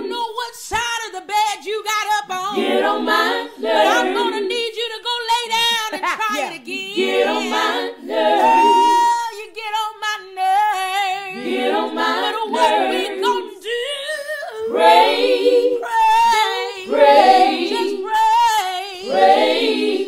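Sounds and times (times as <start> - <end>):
women singing a cappella harmony: 0.0 - 20.0.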